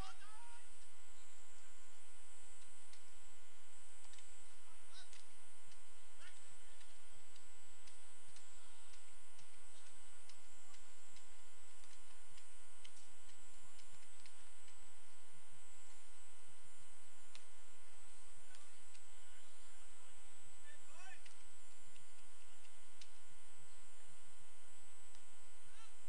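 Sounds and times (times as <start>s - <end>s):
electrical mains hum: 0.0s - 26.0s
faint clicks: 4.0s - 15.2s, 17.2s - 17.6s, 21.2s - 23.3s.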